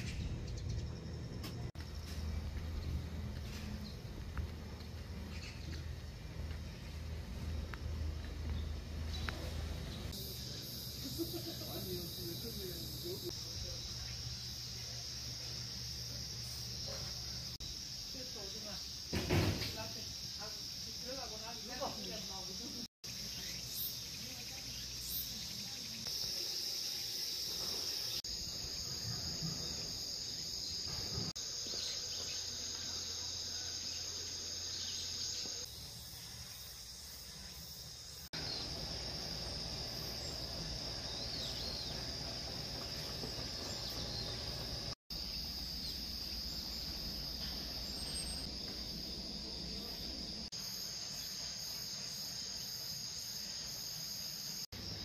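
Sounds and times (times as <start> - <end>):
wind rumble: 0.0 - 1.4
insects droning: 0.0 - 55.0.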